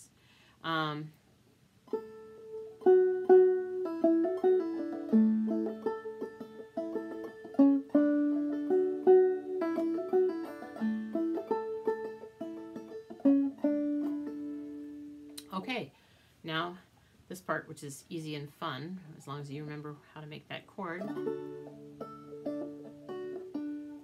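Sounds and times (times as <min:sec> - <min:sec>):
banjo plucked melody: 0:01.8 - 0:15.5, 0:19.7 - 0:24.0.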